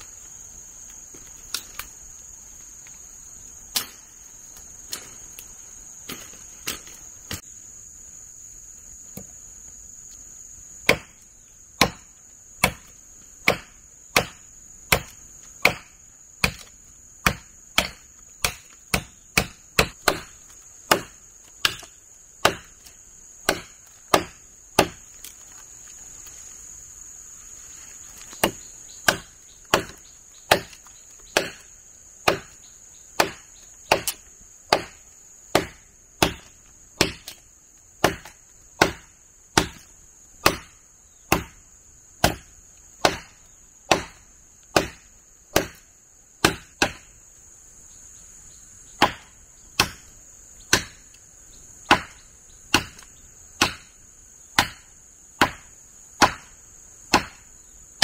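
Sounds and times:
hand tool chopping strikes: 11.8s - 20.3s, 20.9s - 22.8s, 23.4s - 25.0s, 28.4s - 31.6s, 33.2s - 37.4s, 38.0s - 40.7s, 42.2s - 45.0s, 46.4s - 47.0s, 49.0s - 50.0s, 50.7s - 51.0s, 51.9s - 53.0s, 53.6s - 53.9s, 54.6s - 56.5s, 57.1s - 57.4s.

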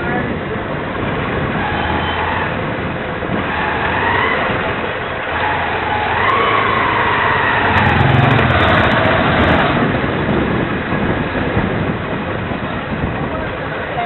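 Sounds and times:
scooter engine whine: 4.4s - 12.8s.

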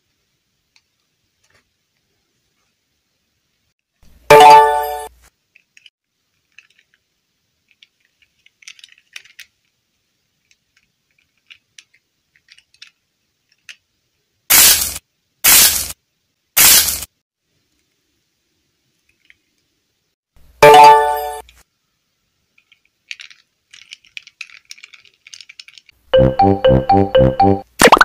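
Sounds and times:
plastic toys clicking and tapping: 5.5s - 9.8s, 10.4s - 13.9s, 22.5s - 26.0s
loud hissing noise bursts: 14.5s - 16.0s, 16.6s - 17.1s.

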